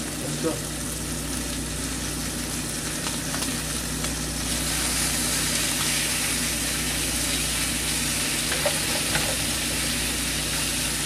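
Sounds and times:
food sizzling in a frying pan: 0:00.0 - 0:11.0
utensil scraping in a pan: 0:08.3 - 0:09.6.

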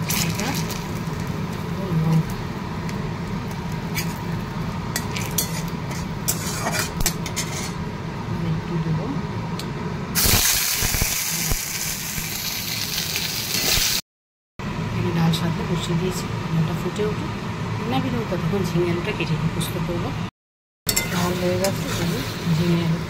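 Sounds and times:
loud oil sizzle: 0:00.0 - 0:08.0, 0:10.1 - 0:14.0, 0:20.9 - 0:23.0
metal spatula scraping and tapping: 0:05.0 - 0:07.8.

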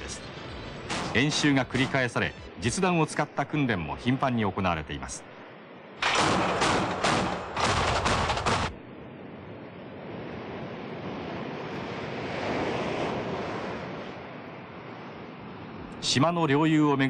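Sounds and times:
steady rushing noise: 0:00.0 - 0:17.0
rapid gunfire: 0:06.0 - 0:08.8.

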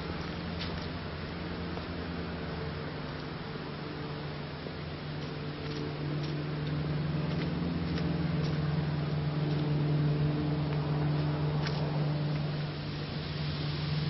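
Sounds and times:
faint footsteps on dirt path: 0:00.0 - 0:02.0, 0:05.1 - 0:12.8
low mechanical motor hum: 0:00.0 - 0:14.0.

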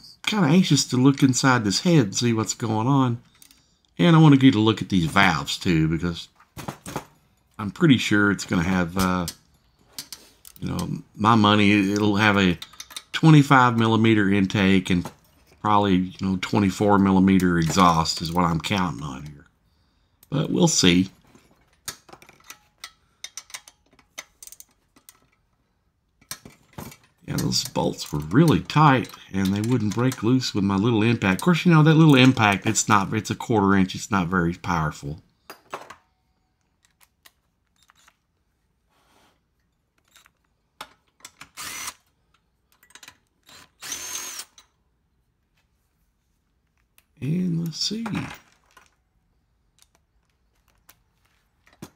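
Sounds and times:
metal clicks: 0:11.9 - 0:13.9, 0:21.6 - 0:25.5
impact driver whining: 0:41.5 - 0:42.1, 0:43.4 - 0:44.6.

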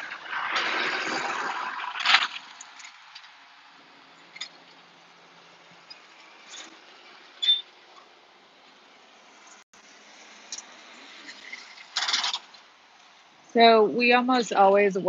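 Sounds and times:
short sharp squeak: 0:07.4 - 0:07.7.

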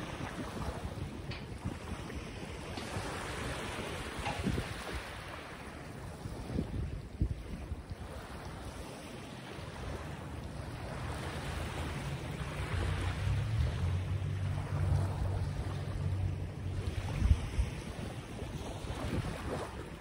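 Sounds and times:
wind blowing across microphone: 0:00.0 - 0:20.0.

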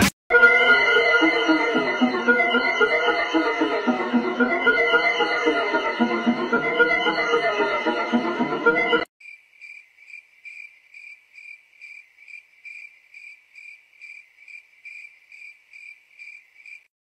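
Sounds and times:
cricket chirping: 0:09.2 - 0:16.9.

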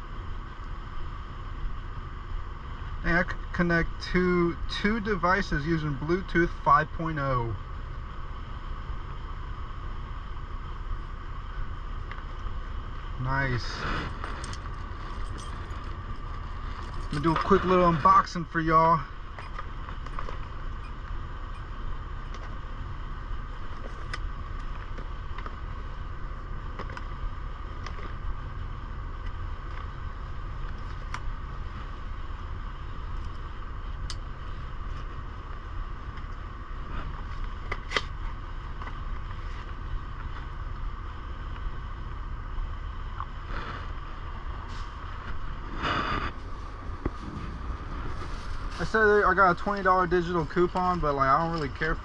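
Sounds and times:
truck engine humming: 0:00.0 - 0:52.0.

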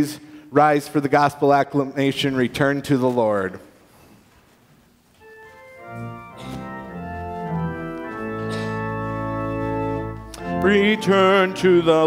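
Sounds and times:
church organ chords: 0:05.2 - 0:12.0.

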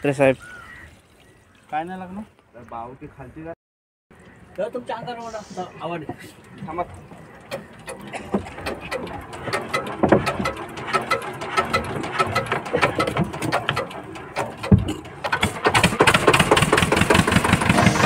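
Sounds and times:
diesel engine clattering: 0:07.4 - 0:18.0.

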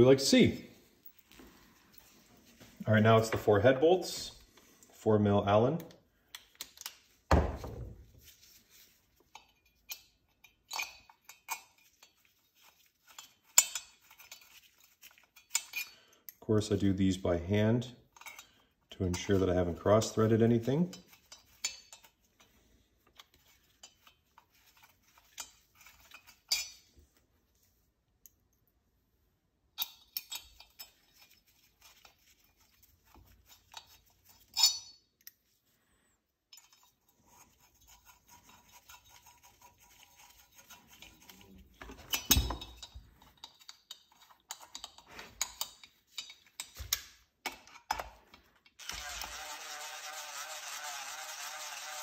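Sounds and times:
metal parts and tools clinking: 0:09.2 - 0:16.4, 0:18.1 - 0:26.9, 0:29.8 - 0:35.5, 0:36.5 - 0:49.9
cordless drill running: 0:48.8 - 0:52.0.

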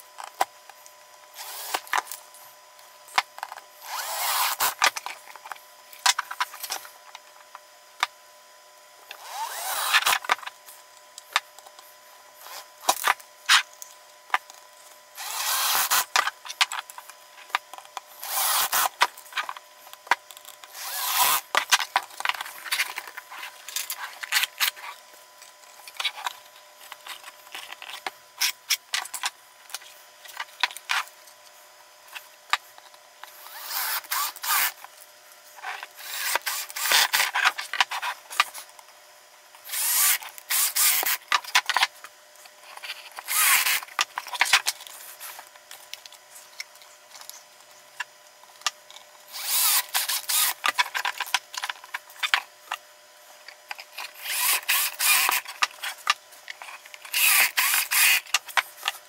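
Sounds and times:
cordless drill driving screws: 0:01.4 - 0:01.8, 0:03.8 - 0:04.8, 0:09.2 - 0:10.2, 0:15.2 - 0:16.1, 0:18.2 - 0:18.9, 0:20.7 - 0:21.4, 0:33.4 - 0:34.8, 0:36.0 - 0:37.2, 0:39.6 - 0:41.2, 0:43.2 - 0:43.8, 0:49.3 - 0:50.6, 0:54.2 - 0:55.4, 0:57.1 - 0:58.3.

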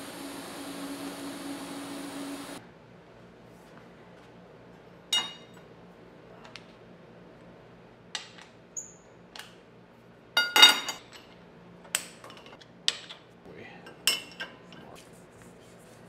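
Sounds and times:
steady low hum: 0:00.0 - 0:02.9.

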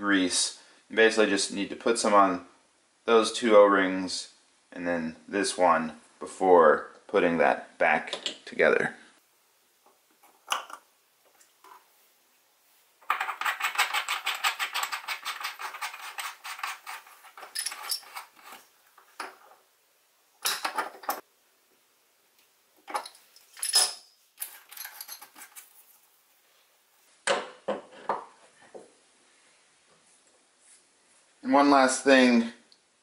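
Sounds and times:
metal faucet parts clinking: 0:13.0 - 0:19.6, 0:20.4 - 0:21.2, 0:22.8 - 0:25.8.

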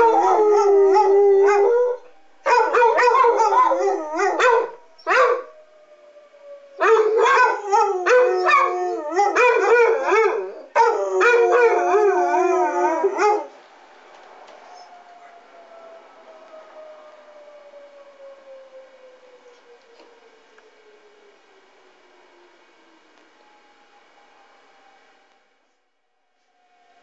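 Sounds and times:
dogs howling: 0:00.0 - 0:13.5
faint warning siren: 0:00.0 - 0:27.0.

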